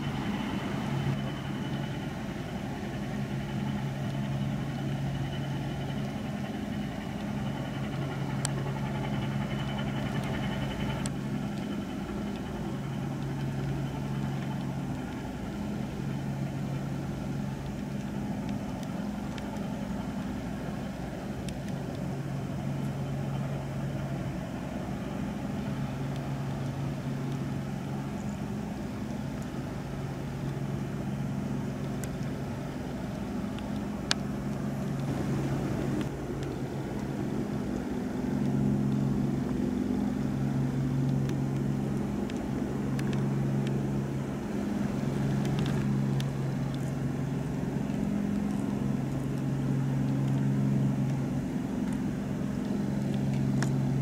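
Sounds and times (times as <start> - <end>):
ship diesel engine droning: 0.0 - 54.0
faint clicks: 51.8 - 54.0.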